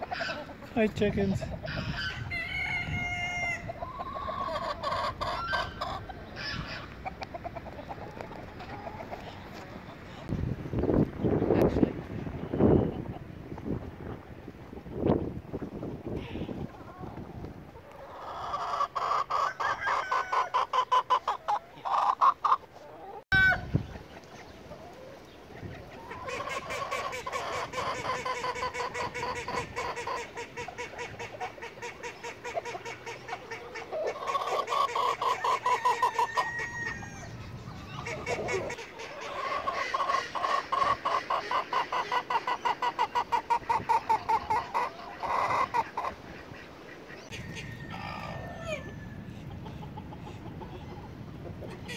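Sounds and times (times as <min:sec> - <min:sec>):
chickens clucking: 0:00.0 - 0:51.9.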